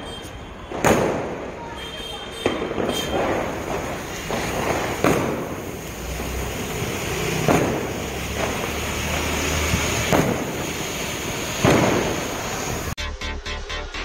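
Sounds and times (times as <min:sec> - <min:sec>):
firework fountain hissing: 0:00.0 - 0:13.0
firework cracks: 0:00.2 - 0:13.0.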